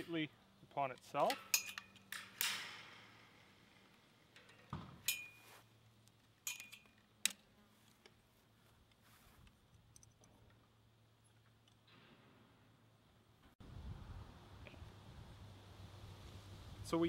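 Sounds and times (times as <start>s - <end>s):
faint metallic clinks: 1.2s - 3.2s, 4.3s - 5.6s, 6.3s - 7.1s, 9.6s - 11.9s.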